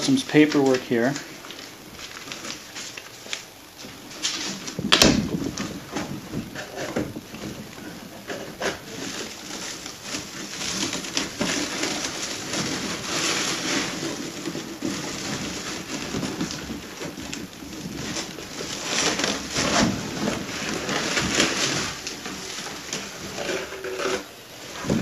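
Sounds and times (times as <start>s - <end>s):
cardboard flaps opening: 0.0s - 25.0s
packing paper rustling: 0.0s - 25.0s.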